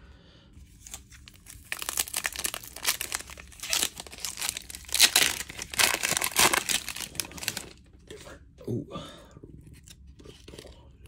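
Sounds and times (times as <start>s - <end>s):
plastic wrapper crinkling: 0.8s - 7.8s
plastic wrapper ripping: 0.8s - 7.8s.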